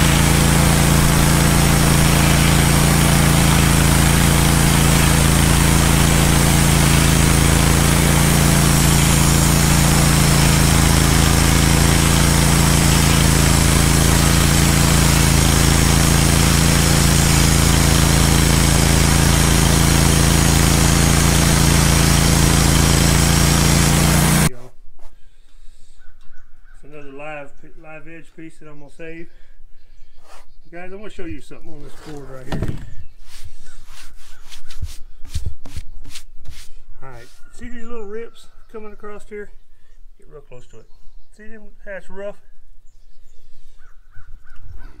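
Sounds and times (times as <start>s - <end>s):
band sawmill cutting log: 0.0s - 24.5s, 31.8s - 37.5s.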